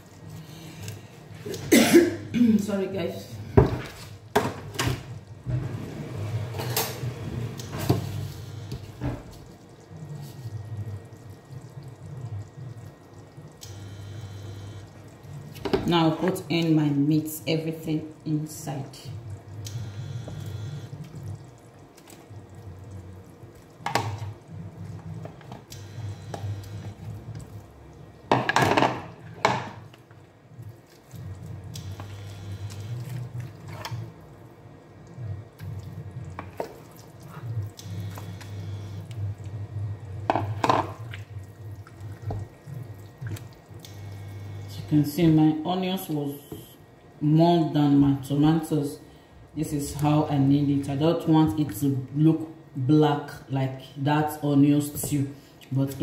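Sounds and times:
low steady hum: 0:00.0 - 0:56.0
stew simmering in a pot: 0:00.0 - 0:56.0
bubbles popping: 0:08.8 - 0:16.6, 0:18.1 - 0:28.4, 0:30.6 - 0:44.6.

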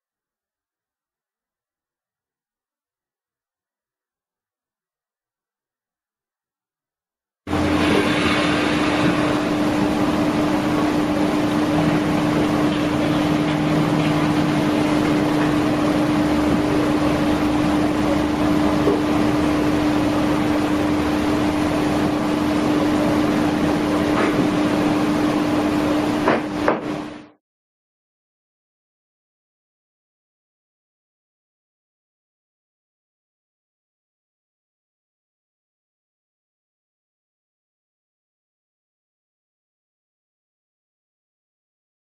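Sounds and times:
even hiss: 0:07.5 - 0:15.3
steady machine hum: 0:07.5 - 0:27.3.

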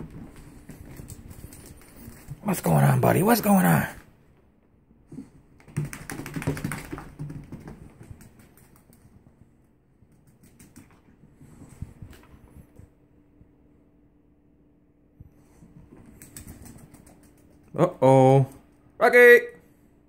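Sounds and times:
dog claws tapping on wooden floor: 0:05.6 - 0:09.4.

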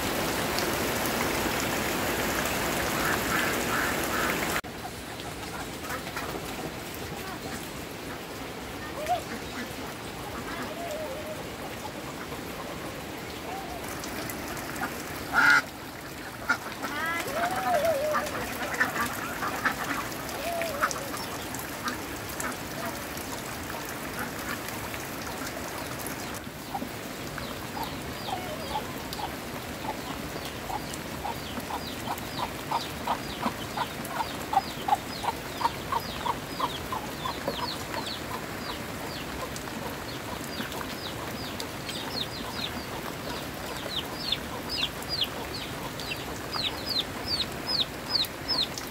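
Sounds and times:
ducks quacking: 0:02.9 - 0:06.5, 0:08.9 - 0:11.0, 0:14.5 - 0:23.0.

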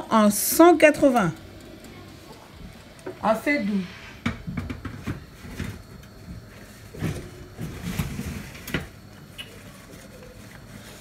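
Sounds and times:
baking dish knocking on racks: 0:04.2 - 0:05.2.

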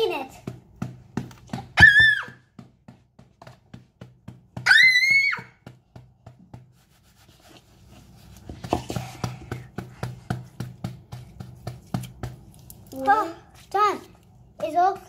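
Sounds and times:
child squealing: 0:01.8 - 0:02.4, 0:04.6 - 0:05.5
tissue wiping over phone: 0:06.6 - 0:09.6.

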